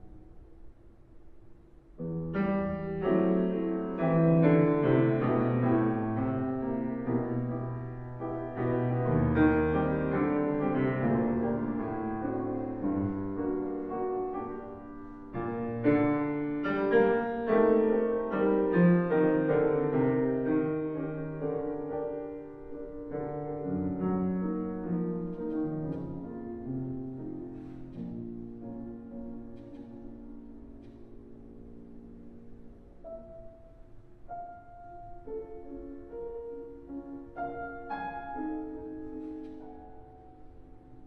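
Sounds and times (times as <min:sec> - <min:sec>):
slow piano music: 0:00.0 - 0:41.0.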